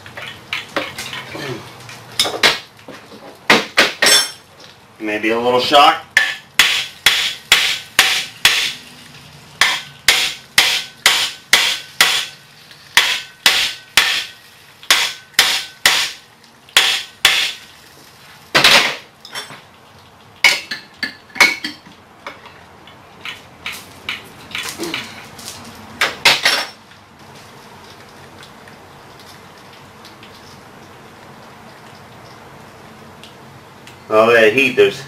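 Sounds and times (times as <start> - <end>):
hammer striking steel: 6.2 - 8.8, 9.6 - 12.4, 13.0 - 16.2, 16.8 - 17.6.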